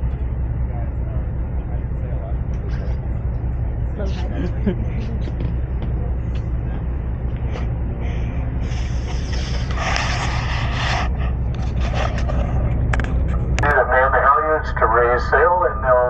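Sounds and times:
boat engine droning: 0:00.0 - 0:16.0
hissing rush: 0:08.6 - 0:12.2.

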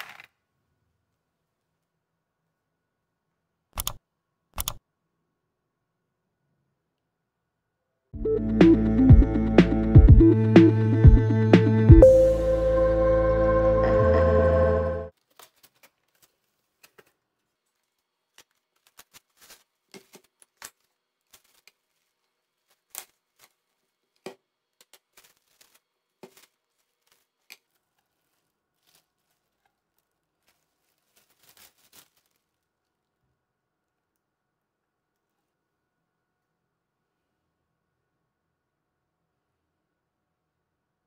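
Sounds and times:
synth music: 0:08.2 - 0:15.1
plastic wrapping crackling: 0:15.1 - 0:33.0.

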